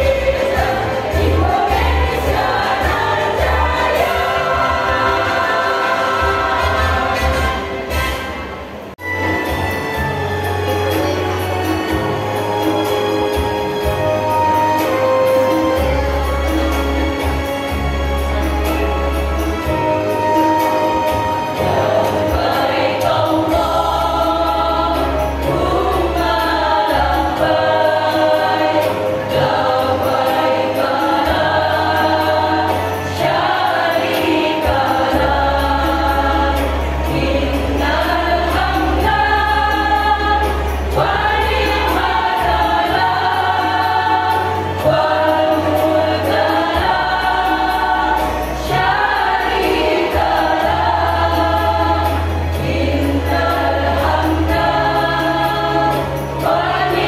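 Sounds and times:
women's choir singing: 0:00.0 - 0:08.0, 0:19.6 - 0:57.0.

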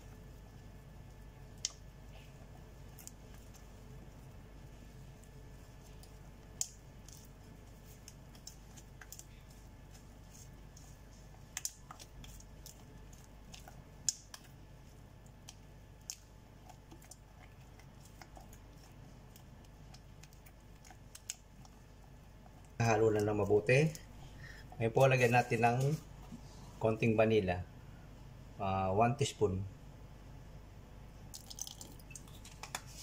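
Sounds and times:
spatula stirring thick batter: 0:00.0 - 0:24.1.

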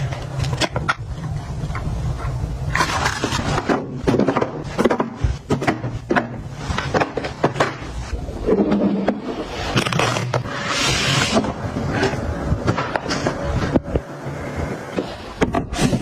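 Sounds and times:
plastic items knocking and tapping: 0:02.8 - 0:07.9.

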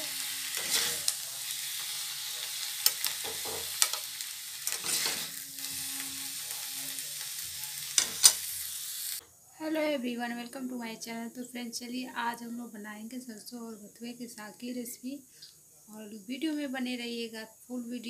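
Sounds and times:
hot pan sizzling: 0:00.0 - 0:09.2
metal spoon scraping a pan: 0:00.2 - 0:08.8.

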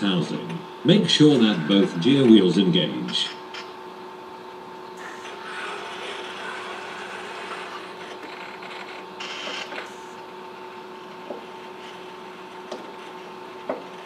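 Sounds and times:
steady two-pitch hum: 0:00.0 - 0:08.2
robot arm motors whirring: 0:05.0 - 0:10.2.

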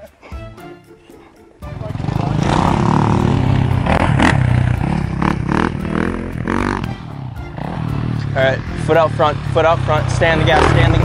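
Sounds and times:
dirt bike engine revving: 0:01.6 - 0:11.0.

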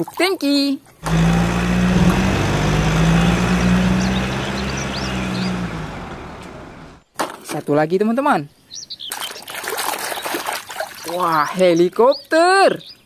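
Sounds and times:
road noise: 0:01.0 - 0:07.0
truck engine running: 0:01.0 - 0:07.0.

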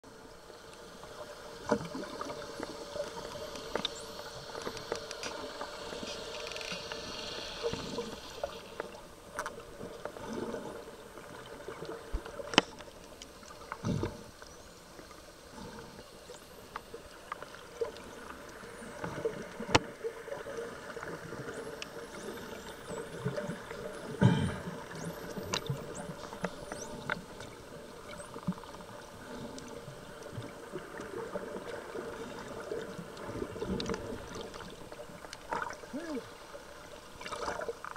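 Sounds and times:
underwater hum and water noise: 0:00.0 - 0:37.9.

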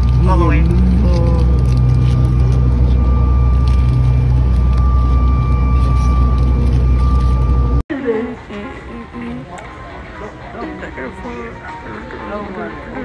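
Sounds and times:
steady high whine: 0:00.0 - 0:07.9
jet engine drone: 0:01.4 - 0:07.8.

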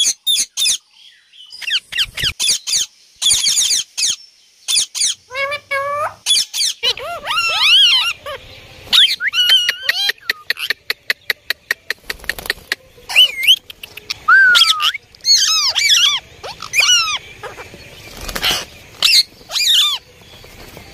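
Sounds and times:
parakeet squawks: 0:01.6 - 0:10.7, 0:13.1 - 0:20.0
parakeet clicks: 0:09.6 - 0:14.3.

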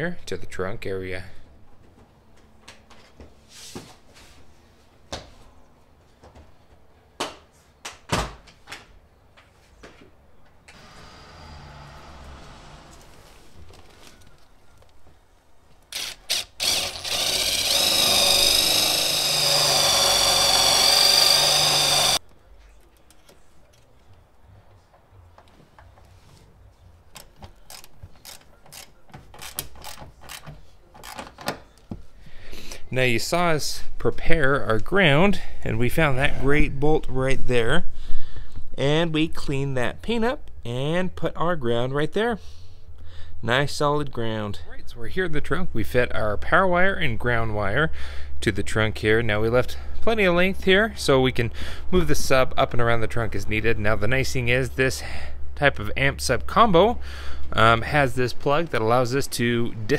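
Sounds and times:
hand ratchet clicking: 0:15.9 - 0:22.2, 0:27.2 - 0:31.2.

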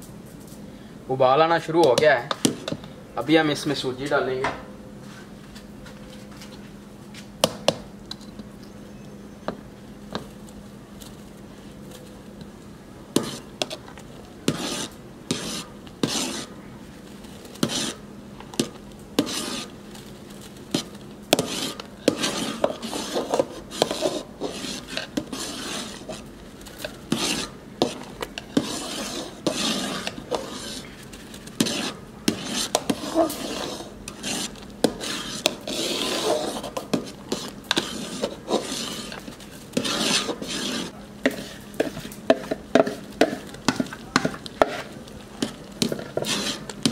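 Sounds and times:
spoon stirring and scraping pot: 0:13.2 - 0:46.9.

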